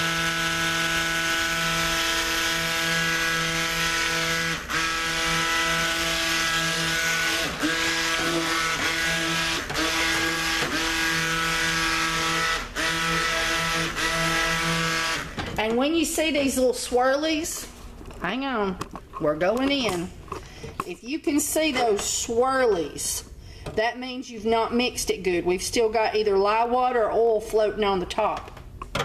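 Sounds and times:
immersion blender motor hum: 0.0s - 15.5s.

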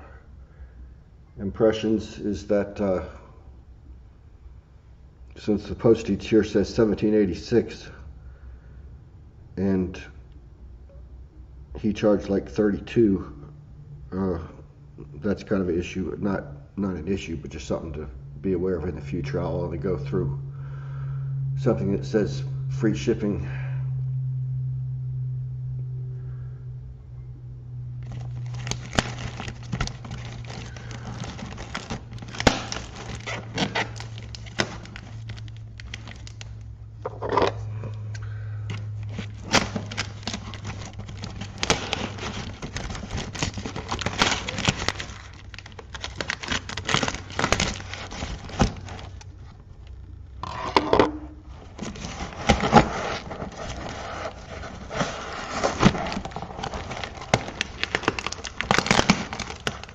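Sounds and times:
tearing tape and cardboard: 28.0s - 36.6s, 38.7s - 49.2s, 51.6s - 59.9s.

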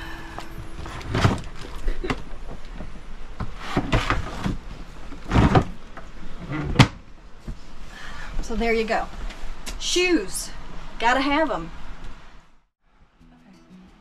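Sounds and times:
crate scraping and knocking: 0.7s - 2.2s, 3.4s - 4.6s.

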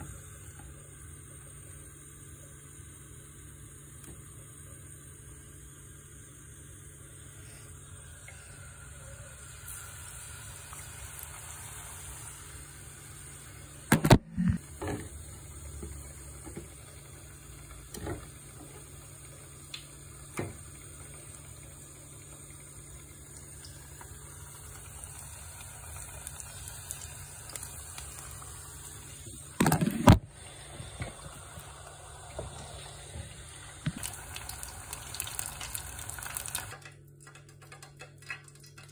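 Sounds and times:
fish sizzling in hot oil: 5.6s - 13.9s, 14.6s - 29.6s, 30.3s - 36.8s.

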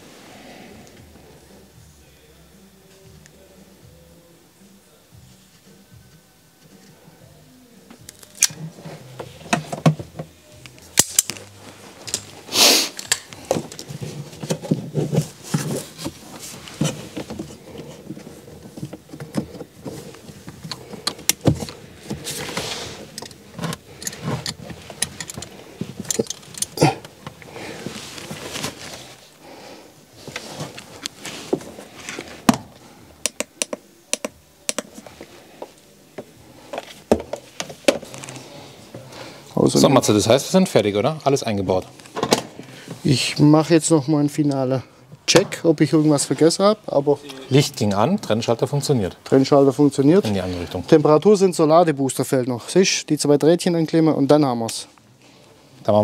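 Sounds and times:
rustling: 11.4s - 29.4s, 30.1s - 32.5s
tools clicking and rattling: 13.0s - 13.9s, 23.1s - 27.2s.

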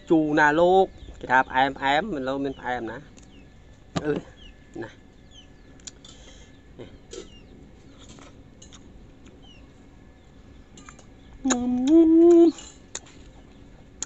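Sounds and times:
falling bird chirps: 0.4s - 8.4s
man humming mmm: 11.4s - 12.6s.

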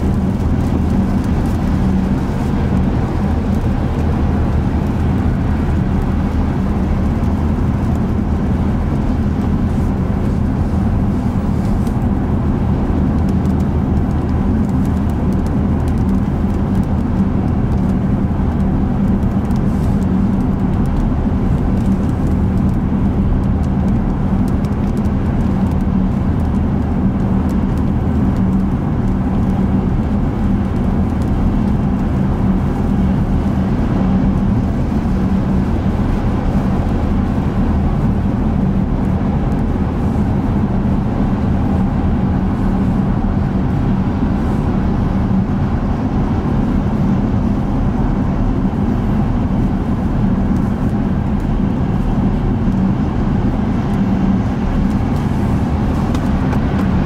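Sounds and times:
car driving at speed: 0.0s - 57.0s.

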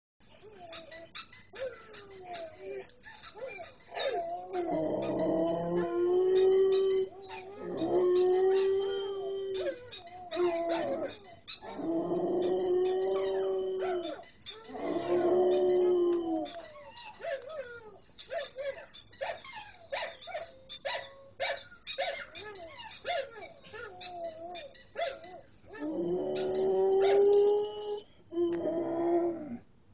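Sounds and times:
dogs howling: 2.3s - 18.0s, 22.5s - 29.6s.

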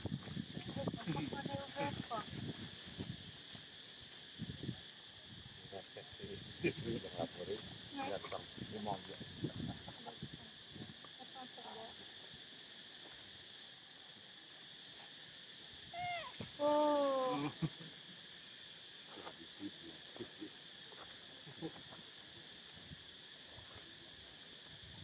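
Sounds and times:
insects droning: 0.0s - 25.0s
monkey call: 15.9s - 17.8s.

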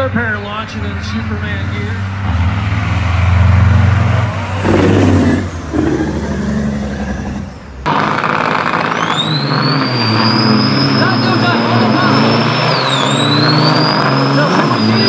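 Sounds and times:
diesel engines revving: 0.0s - 15.0s
high engine whine: 0.0s - 15.0s
truck diesel engines droning: 0.0s - 15.0s.

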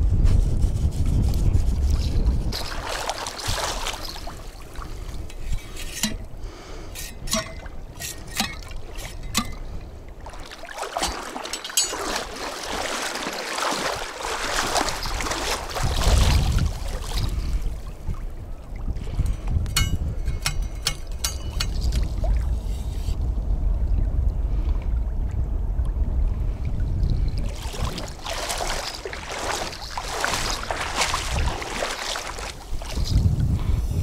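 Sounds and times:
river water splashing: 1.9s - 19.6s, 20.3s - 22.9s, 27.1s - 33.4s.

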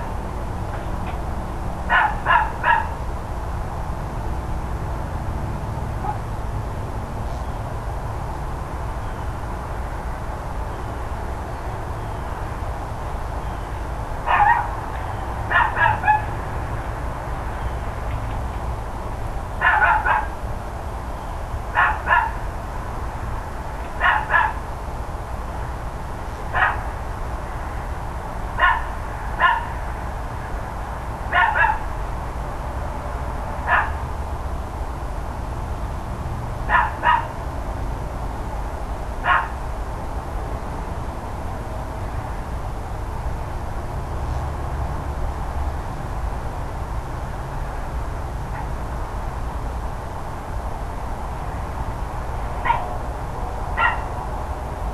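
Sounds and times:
dog barking: 1.9s - 3.0s, 6.0s - 6.2s, 14.3s - 14.7s, 15.5s - 16.3s, 19.6s - 20.4s, 21.8s - 22.4s, 24.0s - 24.6s, 26.6s - 26.9s, 28.6s - 29.8s, 31.3s - 31.8s, 33.6s - 34.0s, 36.7s - 37.4s, 39.2s - 39.6s, 52.6s - 53.0s, 53.8s - 54.1s.

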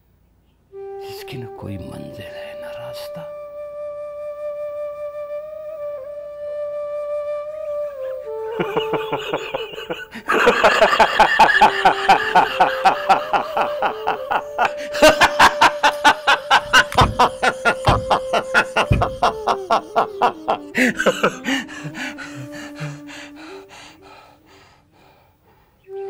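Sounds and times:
flute melody background music: 0.7s - 24.3s
man laughing: 8.5s - 23.1s
dull thumps: 16.6s - 19.6s.

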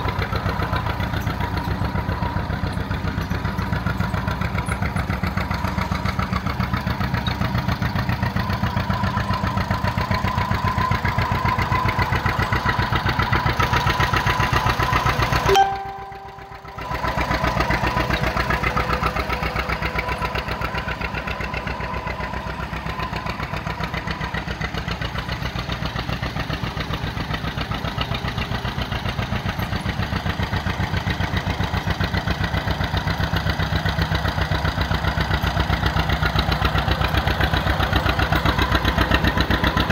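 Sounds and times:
tractor engine pulsing: 0.0s - 39.9s.

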